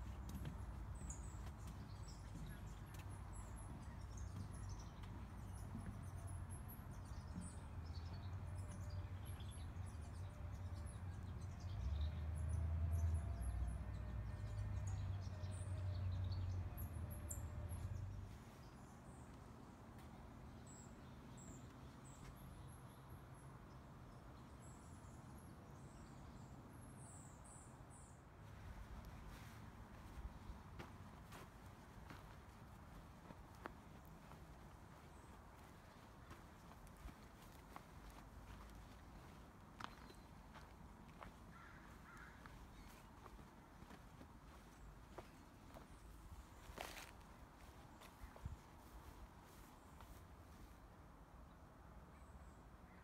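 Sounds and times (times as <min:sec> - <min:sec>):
small birds chirping: 0:29.0 - 0:50.2.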